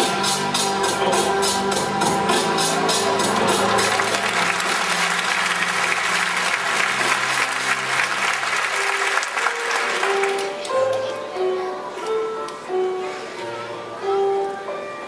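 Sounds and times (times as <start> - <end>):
band music: 0.0 - 15.0
audience applauding: 2.7 - 11.0.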